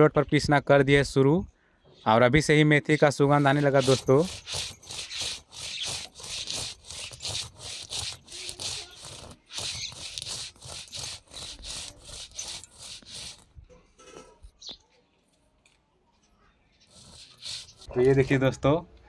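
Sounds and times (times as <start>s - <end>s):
stone roller scraping on grinding slab: 3.2s - 14.3s, 16.8s - 18.4s.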